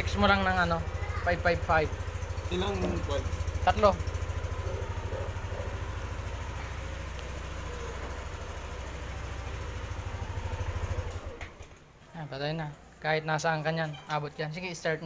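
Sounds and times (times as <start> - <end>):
scooter engine idling and stuttering: 0.0 - 12.0.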